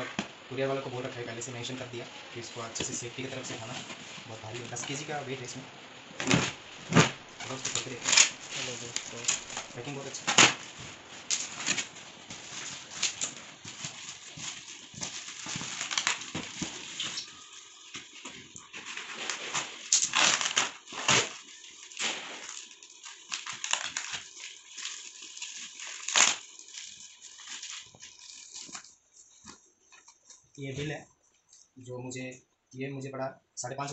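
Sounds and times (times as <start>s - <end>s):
plastic wrap crinkling: 0.0s - 30.6s
cardboard and tape ripping: 6.1s - 28.9s.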